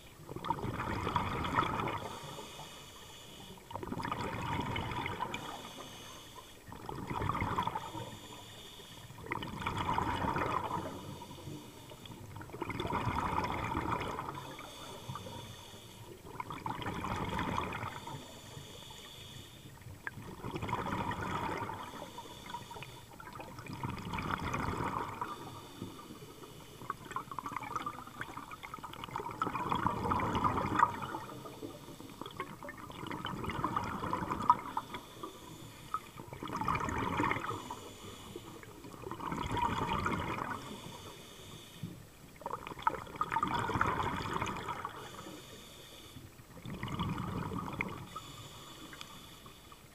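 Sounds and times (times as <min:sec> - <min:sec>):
exhaled bubbles underwater: 0:00.0 - 0:49.2
regulator inhalation hiss: 0:02.0 - 0:03.7, 0:05.3 - 0:06.7, 0:07.7 - 0:09.2, 0:10.8 - 0:12.2, 0:14.4 - 0:16.2, 0:17.9 - 0:19.8, 0:21.8 - 0:23.2, 0:25.2 - 0:27.0, 0:31.3 - 0:32.3, 0:34.7 - 0:36.2, 0:37.4 - 0:38.9, 0:40.6 - 0:42.0, 0:44.9 - 0:46.3, 0:48.1 - 0:49.9.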